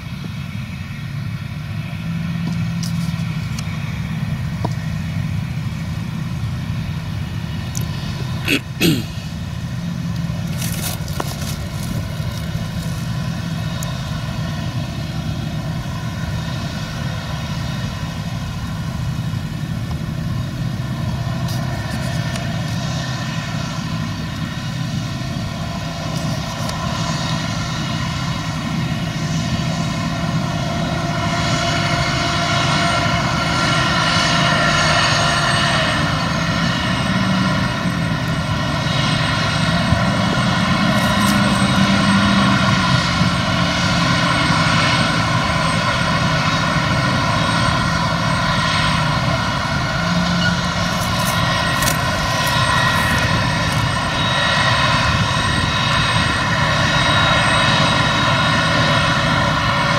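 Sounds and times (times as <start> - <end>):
diesel engines droning: 0.0 - 59.9.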